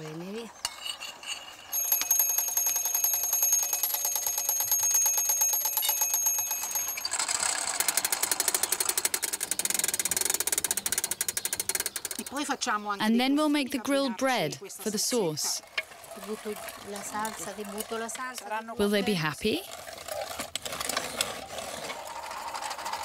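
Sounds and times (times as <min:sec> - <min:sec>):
thin high ring: 0:00.6 - 0:07.3
clockwork spit-jack ticking: 0:01.7 - 0:12.6
ratcheting clatter of winding: 0:01.7 - 0:12.6, 0:15.6 - 0:18.6.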